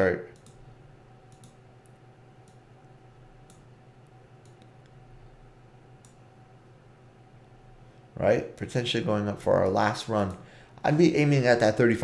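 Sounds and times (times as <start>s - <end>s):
low electrical hum: 0.0s - 12.0s
computer mouse clicks: 0.3s - 0.6s, 1.3s - 2.6s, 3.4s - 5.0s, 6.0s - 6.2s.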